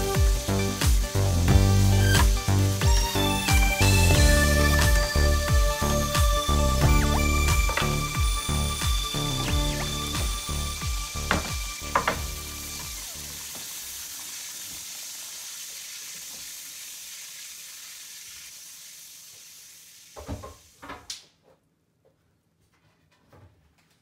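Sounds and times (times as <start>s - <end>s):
stir-fry sizzling in a pan: 0.0s - 20.8s
knocks: 8.9s - 12.4s.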